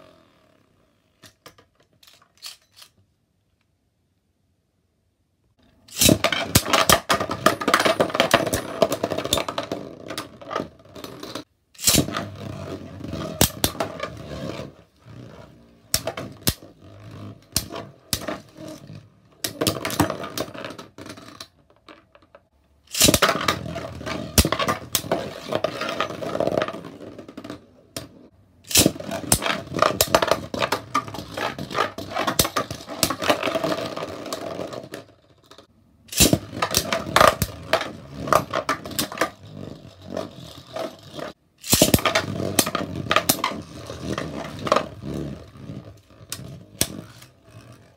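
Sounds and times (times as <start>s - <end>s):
spinning tops whirring and scraping: 5.8s - 21.5s, 22.9s - 47.9s
spinning tops clacking together: 35.4s - 37.5s.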